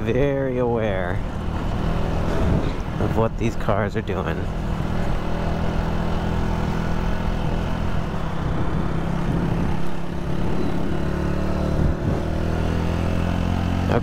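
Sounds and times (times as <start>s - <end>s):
motorcycle engine running: 4.3s - 14.0s.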